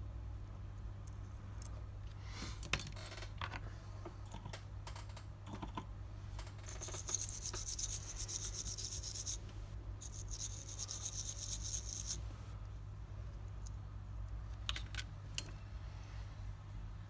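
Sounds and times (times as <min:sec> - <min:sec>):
low electrical hum: 0:00.0 - 0:17.0
fine scratching on hard surface: 0:06.7 - 0:09.4.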